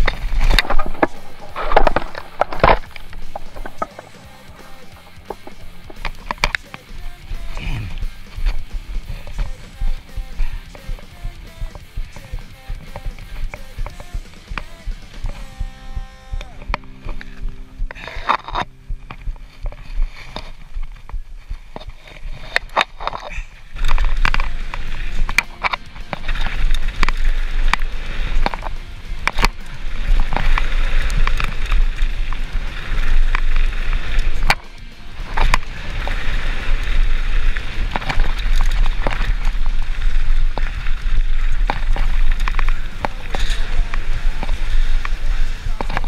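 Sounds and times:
bike rattling over bumps: 0:00.0 - 0:46.0
tyres rolling over dirt and stones: 0:00.0 - 0:46.0
wind buffeting microphone: 0:15.6 - 0:25.4.

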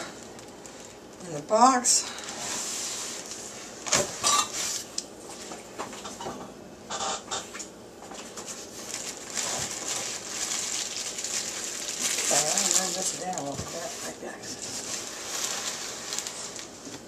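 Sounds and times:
plastic film crinkling: 0:00.0 - 0:02.3, 0:08.2 - 0:17.0
cardboard rustling: 0:08.2 - 0:17.0.

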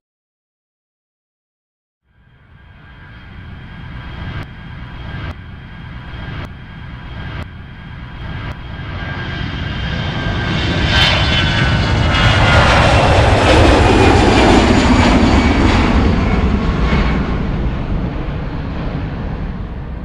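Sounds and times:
airplane flying past: 0:02.1 - 0:20.0.

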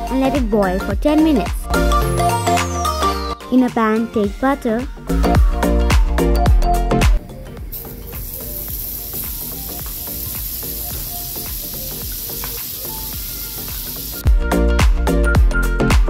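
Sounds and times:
loud background music: 0:00.0 - 0:16.0
butter sizzling in a frying pan: 0:07.7 - 0:14.3.

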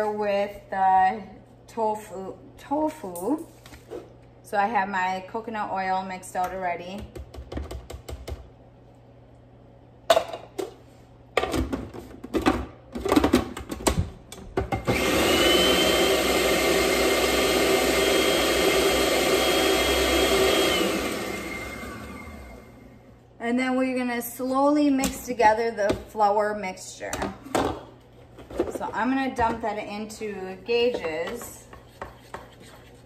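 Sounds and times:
food processor motor running: 0:14.8 - 0:23.0.

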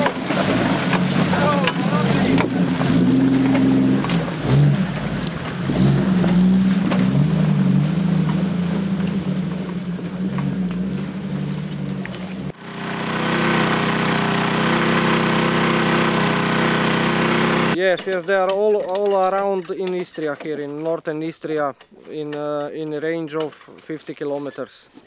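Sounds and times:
off-road vehicle engine revving: 0:00.0 - 0:17.8
steady engine hum: 0:00.0 - 0:17.8.

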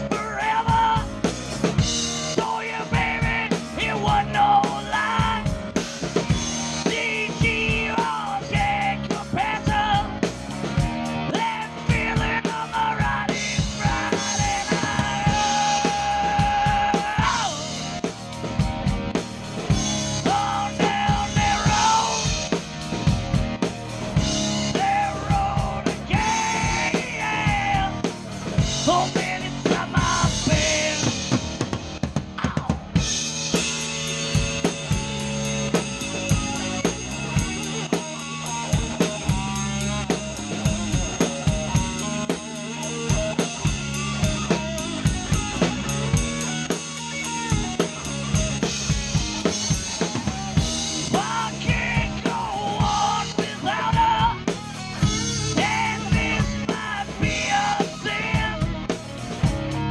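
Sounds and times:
drums: 0:00.0 - 0:59.9
live rock band playing: 0:00.0 - 0:59.9
fast cymbal pattern: 0:33.0 - 0:59.8.

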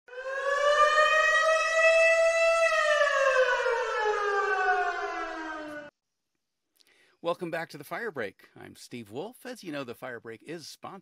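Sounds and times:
siren wail: 0:00.1 - 0:05.9.

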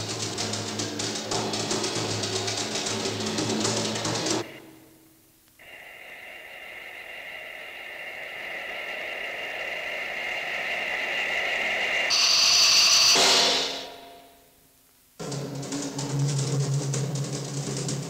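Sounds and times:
experimental film score music: 0:00.0 - 0:14.6, 0:15.2 - 0:18.0
high whistling electronic tone: 0:05.6 - 0:14.5.

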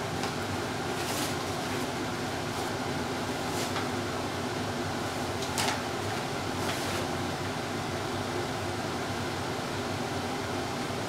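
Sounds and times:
steady hum: 0:00.0 - 0:11.0
paper bag rustling and crinkling: 0:00.9 - 0:02.8, 0:03.4 - 0:03.9, 0:05.4 - 0:07.1.

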